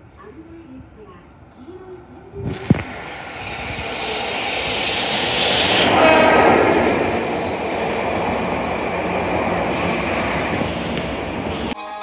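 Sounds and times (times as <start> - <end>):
train wheels on rails: 2.4 - 11.8
train horn blast: 5.8 - 7.3.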